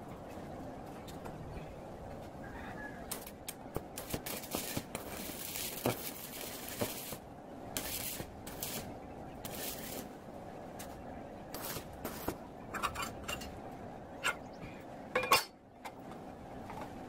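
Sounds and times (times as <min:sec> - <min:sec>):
welding arc crackling and sizzling: 0:03.0 - 0:12.5.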